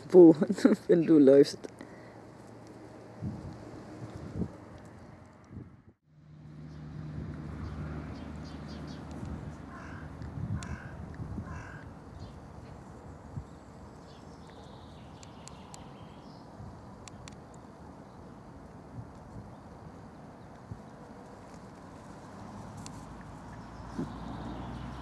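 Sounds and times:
crow cawing: 9.7 - 12.0.

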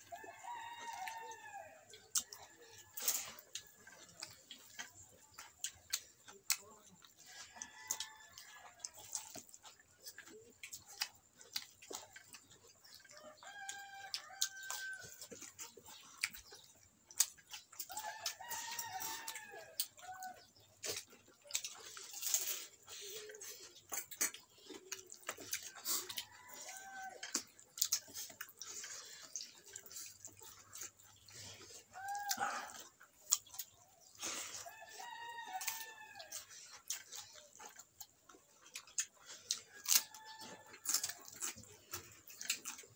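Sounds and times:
rooster crowing: 0.0 - 1.9, 13.2 - 15.2, 17.8 - 20.4, 25.8 - 27.4, 31.9 - 32.9, 34.5 - 36.5, 39.8 - 41.5
chickens clucking: 0.0 - 42.9.

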